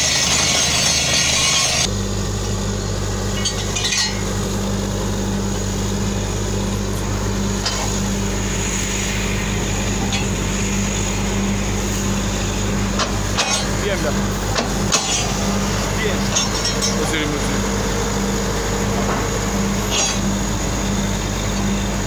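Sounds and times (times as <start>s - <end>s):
drilling rig engine running: 0.0s - 22.0s
loud air hiss: 5.9s - 16.3s.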